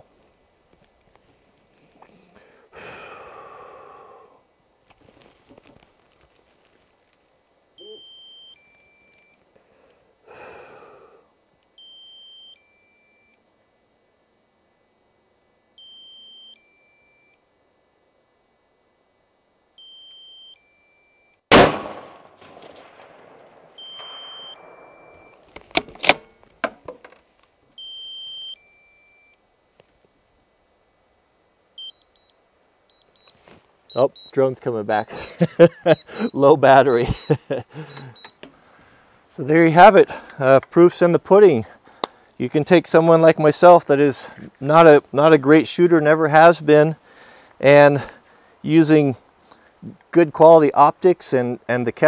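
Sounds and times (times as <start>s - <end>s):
three-note warning beep: 7.8s - 9.4s, 11.8s - 13.4s, 15.8s - 17.4s, 19.8s - 21.4s, 23.8s - 25.4s, 27.8s - 29.4s, 32.9s - 38.4s
rifle shot: 21.5s - 25.1s.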